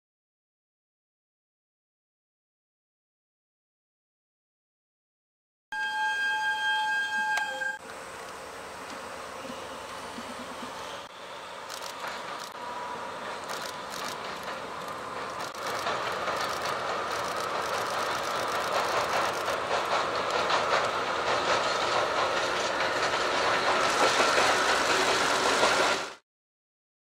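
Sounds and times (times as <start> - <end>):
train wheels clickety-clack: 11.6 - 12.6, 13.2 - 26.2.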